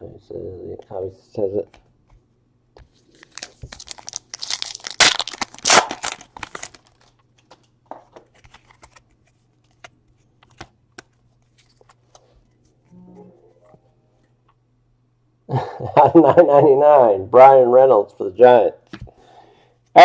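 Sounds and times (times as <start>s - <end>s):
foil wrapper tearing and crinkling: 3.1s - 7.2s
cards clicking and sliding: 7.4s - 12.7s.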